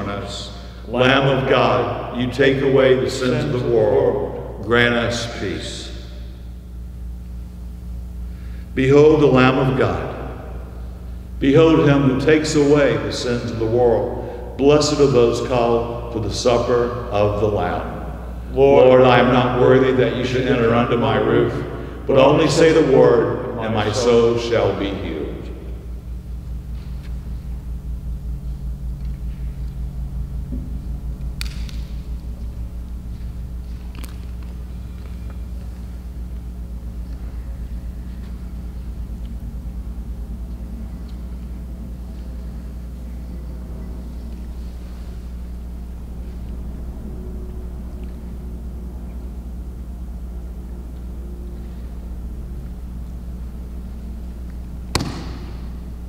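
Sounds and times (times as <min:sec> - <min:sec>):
low throbbing hum: 0:00.0 - 0:56.0.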